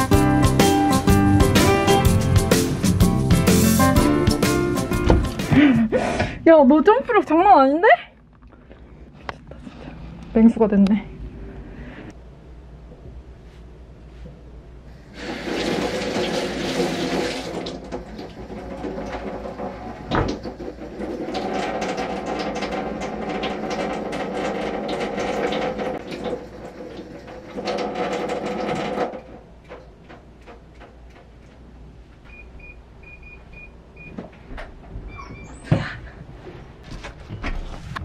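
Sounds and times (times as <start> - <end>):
water running: 14.9 - 29.3.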